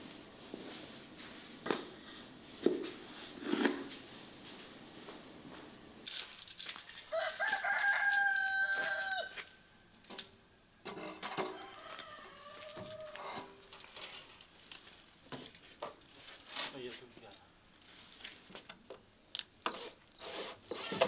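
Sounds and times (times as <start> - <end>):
rooster crowing: 7.1 - 9.5, 11.4 - 13.5.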